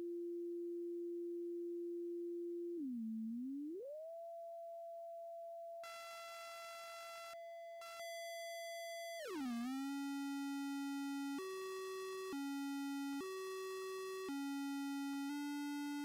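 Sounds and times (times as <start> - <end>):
electronic sine tone: 1.1 - 5.2, 9.1 - 16.0
buzzy square wave tone: 5.8 - 8.2.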